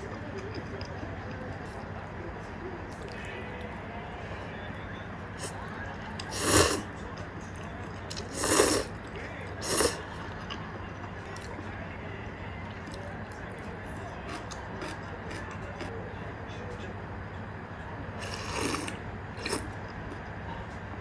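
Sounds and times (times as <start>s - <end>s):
person slurping noodles: 6.3s - 6.8s, 8.3s - 8.9s, 9.6s - 10.0s, 18.2s - 19.7s.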